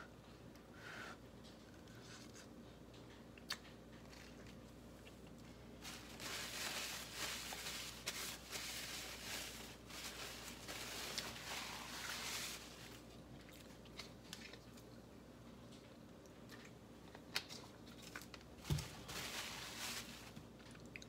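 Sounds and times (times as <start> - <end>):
paper towel crumpling: 5.8 - 13.1, 18.6 - 20.4.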